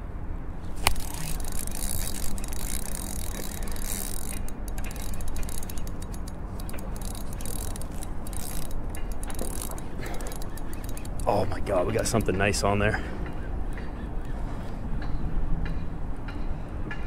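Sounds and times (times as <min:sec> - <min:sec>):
fishing reel gears ticking: 0:00.7 - 0:12.7.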